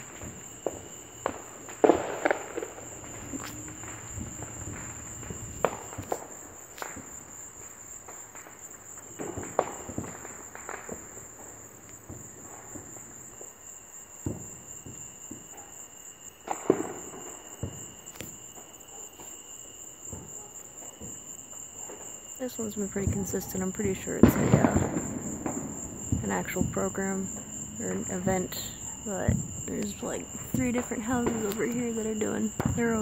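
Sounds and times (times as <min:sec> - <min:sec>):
distant firework bangs: 0:00.0 - 0:13.6, 0:14.2 - 0:15.8, 0:16.4 - 0:33.0
crickets chirping: 0:00.0 - 0:33.0.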